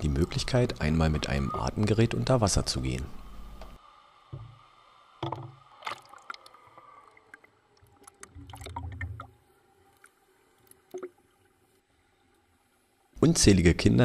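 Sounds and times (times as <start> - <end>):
pool water splashing and bubbling: 5.2 - 11.8.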